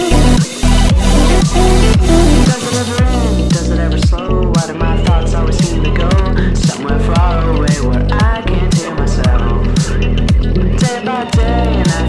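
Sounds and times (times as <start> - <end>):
song with steady beat: 0.0 - 12.0.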